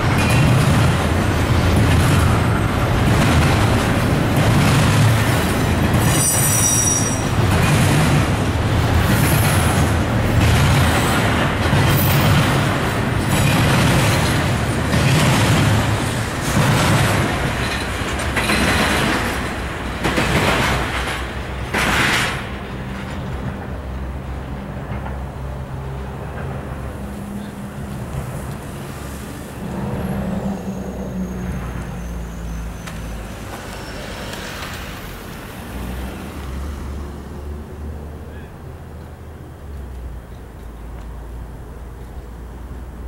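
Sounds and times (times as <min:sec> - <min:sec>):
train wheels rumbling on rail: 0:00.0 - 0:43.0
high-pitched squeal: 0:06.1 - 0:07.3, 0:29.1 - 0:35.2.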